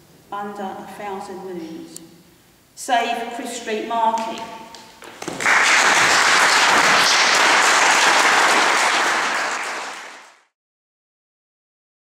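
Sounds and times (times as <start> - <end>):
audience applauding: 5.0 - 10.5.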